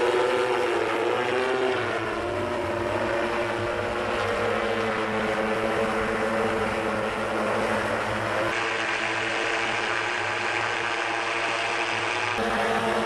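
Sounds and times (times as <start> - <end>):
electric rotors humming: 0.0 - 13.0.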